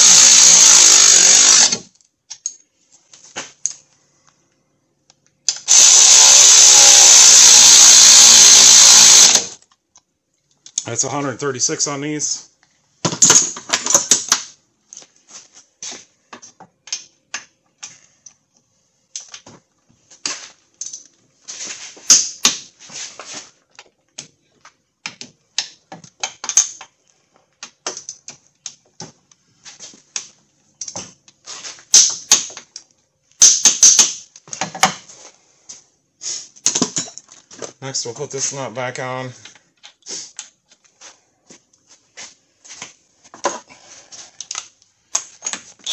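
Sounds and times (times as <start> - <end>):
ratchet wrench clicking: 5.5 - 9.5.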